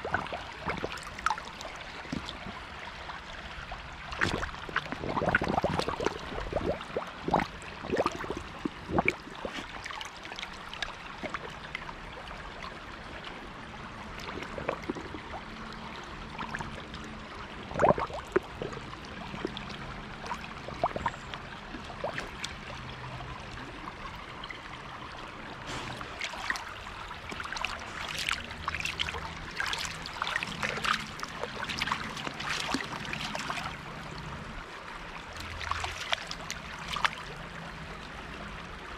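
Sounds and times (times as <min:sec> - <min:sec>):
stream trickling and gurgling: 0:00.0 - 0:38.9
dog splashing through water: 0:25.7 - 0:33.7.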